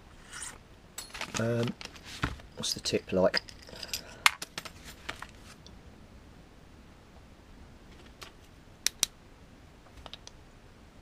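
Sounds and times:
small metal parts clicking: 0:03.3 - 0:04.7.

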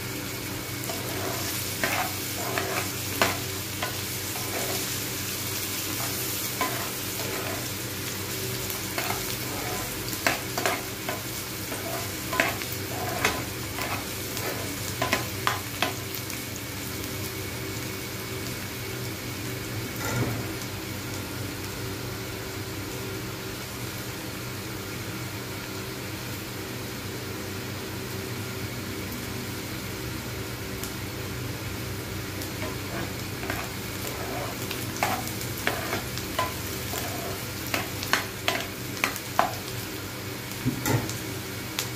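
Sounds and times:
onions sizzling in hot oil: 0:00.0 - 0:41.9
metal spoon scraping a pan: 0:00.9 - 0:05.0, 0:05.9 - 0:07.8, 0:09.0 - 0:15.9, 0:32.6 - 0:38.7.

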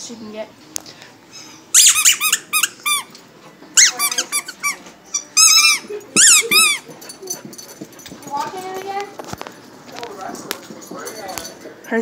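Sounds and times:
squeaky ball squeaking: 0:01.8 - 0:03.1, 0:03.8 - 0:06.9.

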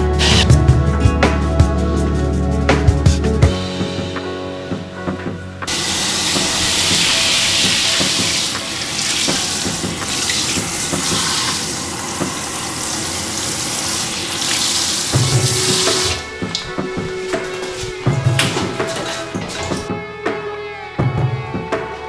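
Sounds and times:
shower water spraying: 0:00.2 - 0:00.4, 0:05.7 - 0:19.9.

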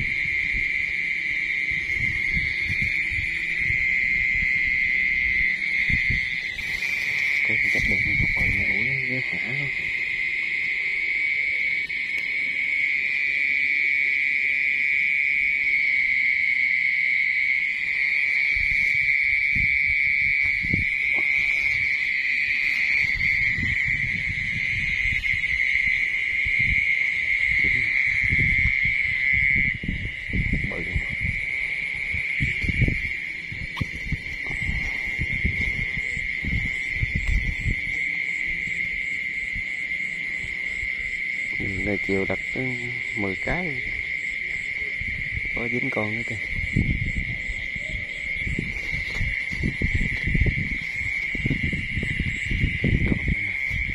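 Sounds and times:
crickets chirping: 0:00.0 - 0:53.9
low thumps and rustles: 0:48.4 - 0:53.9.

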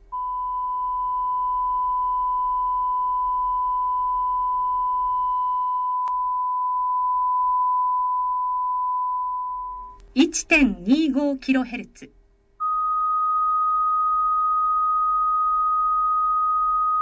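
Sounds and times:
sine test tone: 0:00.1 - 0:10.0, 0:12.6 - 0:17.0
click: 0:09.9 - 0:10.1.

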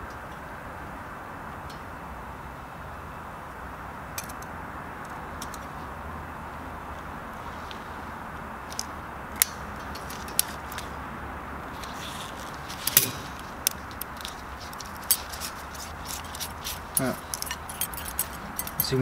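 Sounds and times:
low background noise: 0:00.0 - 0:19.0
metallic clicks of pliers and piston ring: 0:16.1 - 0:19.0.

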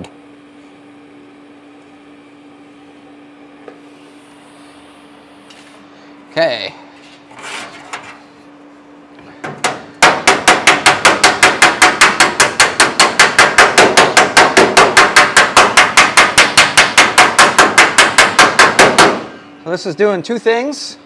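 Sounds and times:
hammer striking metal panel: 0:09.4 - 0:19.4.

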